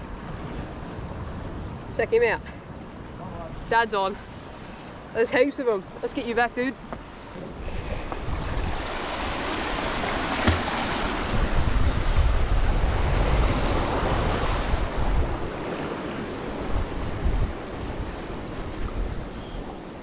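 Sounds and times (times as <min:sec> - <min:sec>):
sea waves washing ashore: 0:00.0 - 0:20.0
wind buffeting microphone: 0:05.8 - 0:19.4.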